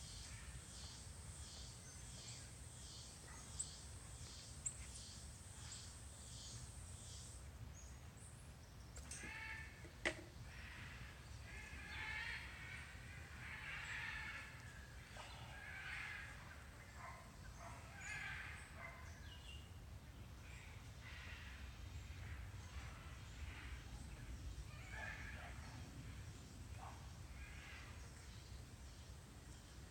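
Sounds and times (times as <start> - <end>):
faint outdoor ambience: 0.0 - 29.9.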